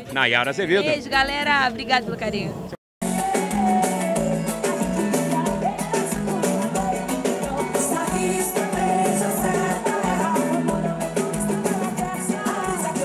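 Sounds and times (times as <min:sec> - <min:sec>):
band playing upbeat country song: 0:03.0 - 0:13.0.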